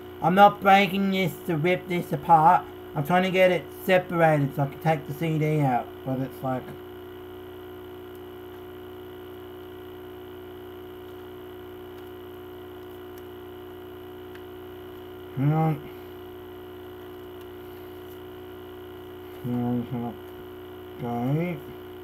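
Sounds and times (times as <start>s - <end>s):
electrical mains hum: 0.0s - 22.0s
person grunting: 15.3s - 16.1s.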